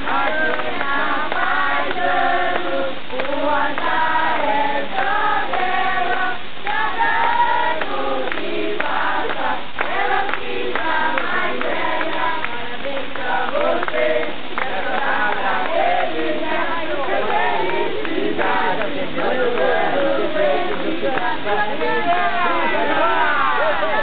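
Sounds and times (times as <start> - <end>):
group singing in chorus: 0.0 - 24.0.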